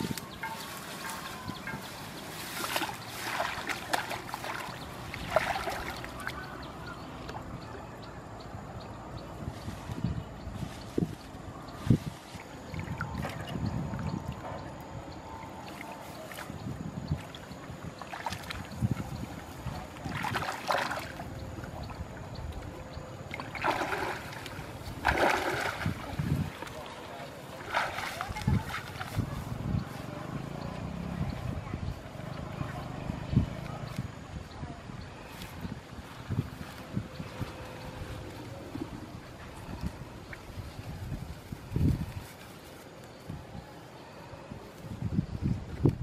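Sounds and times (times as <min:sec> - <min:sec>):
grass rustling: 0:00.0 - 0:06.5, 0:09.4 - 0:13.5, 0:35.2 - 0:44.0
muddy water splashing: 0:00.0 - 0:07.7, 0:10.6 - 0:34.1.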